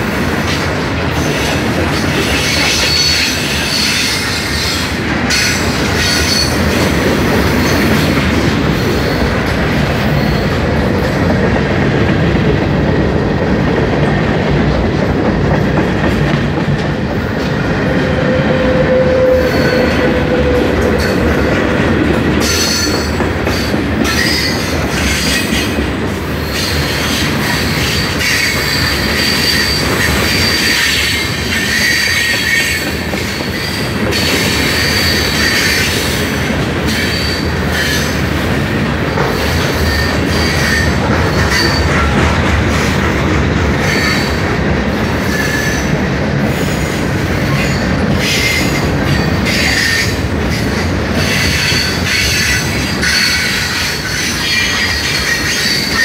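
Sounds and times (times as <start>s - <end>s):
clickety-clack over rail joints: 0.0s - 56.0s
train wheels rumbling on rails: 0.0s - 56.0s
high wheel squeal: 18.0s - 21.2s, 26.5s - 36.2s, 47.6s - 56.0s.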